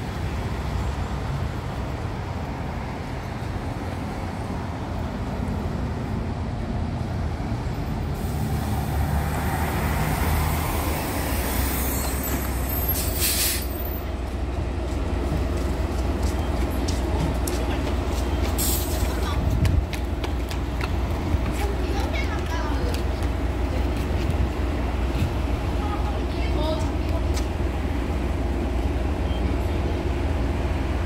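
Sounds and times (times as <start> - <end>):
bus engine running: 0.0 - 31.0
air brake hiss: 11.0 - 13.8, 18.6 - 19.0.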